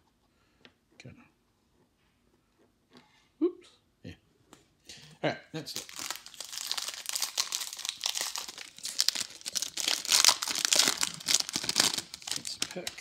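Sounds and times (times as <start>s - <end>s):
foil wrapper crackling: 5.7s - 13.0s.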